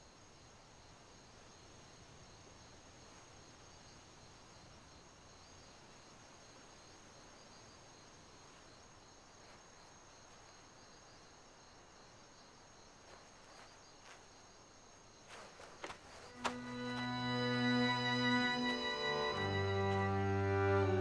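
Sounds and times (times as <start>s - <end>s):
insects chirring: 0.0s - 21.0s
soft rustles: 12.9s - 14.6s, 15.2s - 17.1s.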